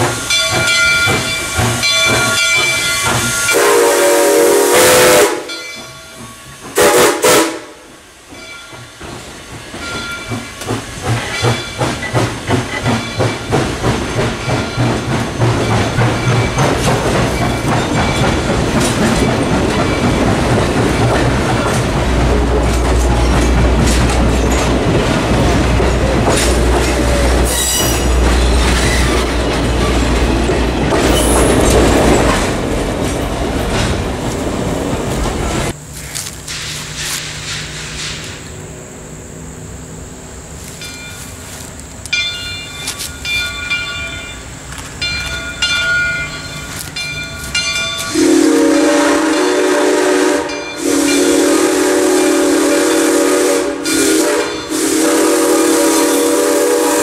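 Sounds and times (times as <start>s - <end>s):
train wheels clicking over rail joints: 0.0s - 4.0s, 4.8s - 38.8s, 40.3s - 57.0s
steam whistle blast: 3.0s - 5.6s, 6.8s - 7.8s, 48.1s - 57.0s.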